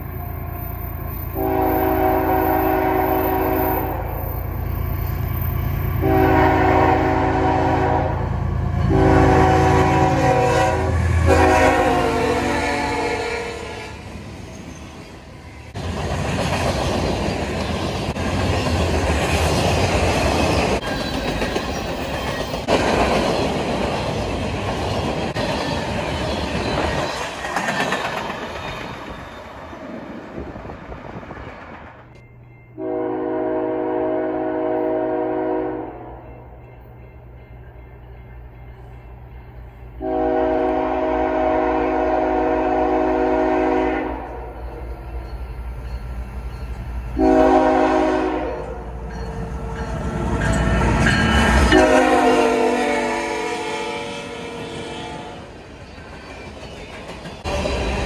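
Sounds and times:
diesel locomotive engine: 0.0 - 58.0
locomotive air horn: 1.3 - 4.2, 6.0 - 14.0, 32.8 - 36.1, 40.0 - 44.5, 47.2 - 48.8, 51.7 - 55.6
freight train cars clattering: 14.4 - 35.6, 55.6 - 58.0.

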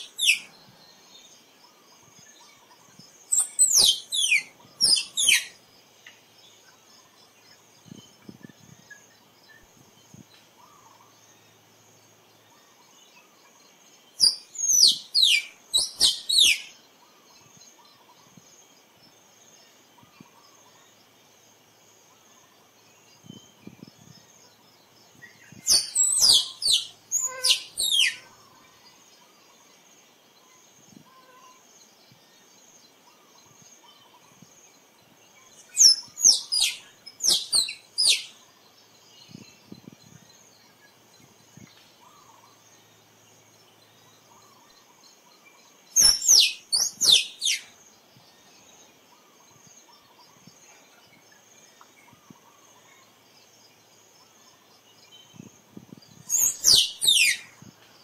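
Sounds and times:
squirrel chirping: 3.3 - 5.6, 14.2 - 16.6, 25.6 - 28.3, 35.6 - 38.4, 46.0 - 47.7, 56.3 - 57.5.

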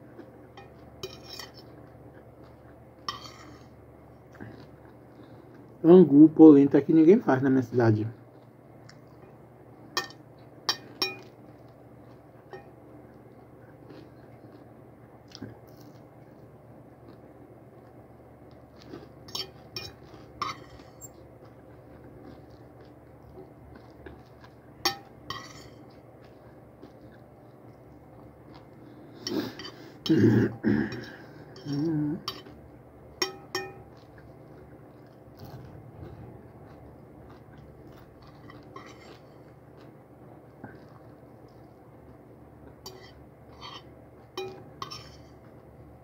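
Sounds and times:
fork clinking on plate: 0.6 - 1.6, 10.0 - 11.3, 33.2 - 33.9, 42.8 - 45.2.

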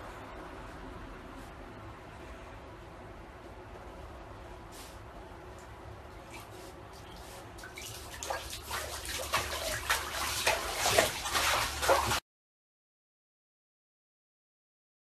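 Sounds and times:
bath water sloshing and splashing: 6.2 - 12.2.

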